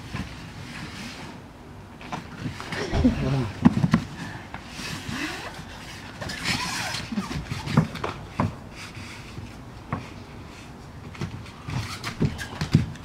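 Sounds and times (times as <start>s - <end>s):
bodies thumping on foam mats: 2.8s - 3.8s.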